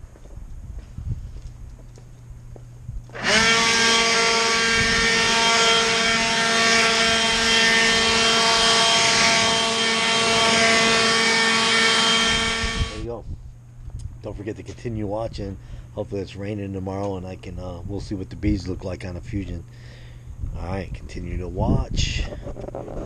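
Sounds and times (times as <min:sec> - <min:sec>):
cordless blower running: 0:03.1 - 0:13.1.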